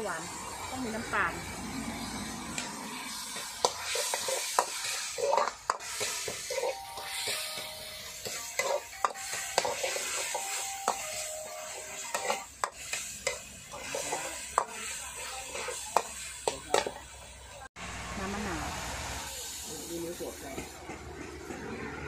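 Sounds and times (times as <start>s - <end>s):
vegetables sizzling in oil: 0.0s - 21.9s
ladle scraping and clinking wok: 1.2s - 17.5s.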